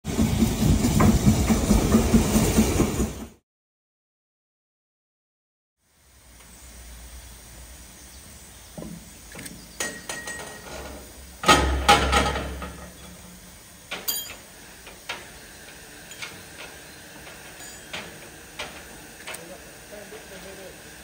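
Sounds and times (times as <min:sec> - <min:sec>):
metal clanks and knocks: 0:08.8 - 0:19.6
heavy metal clatter with rumble: 0:10.2 - 0:19.0.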